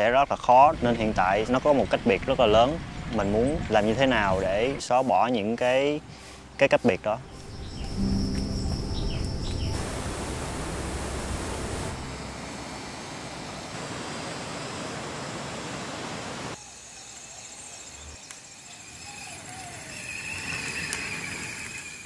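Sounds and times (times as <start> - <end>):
slow creek flowing: 5.6 - 16.8, 18.4 - 22.0
stream water rushing: 8.0 - 16.6.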